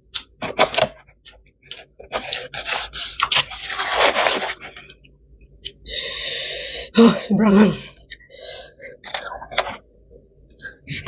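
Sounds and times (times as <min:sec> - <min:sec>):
wet chewing and smacking: 0:00.0 - 0:05.8
breathy hiss: 0:05.8 - 0:07.1, 0:08.2 - 0:09.0.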